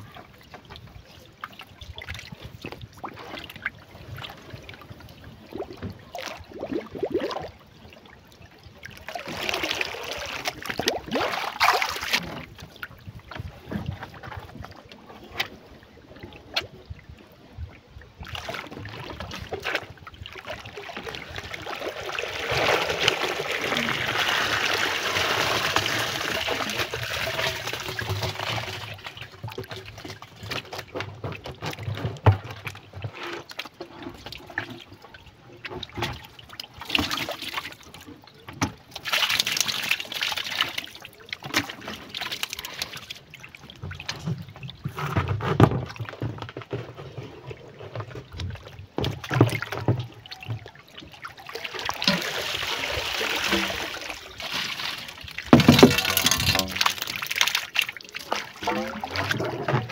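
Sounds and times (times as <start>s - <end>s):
water trickling and splashing: 0.0s - 59.9s
water pouring out of bucket: 9.1s - 12.2s, 20.6s - 29.8s, 39.0s - 43.1s, 51.3s - 59.9s.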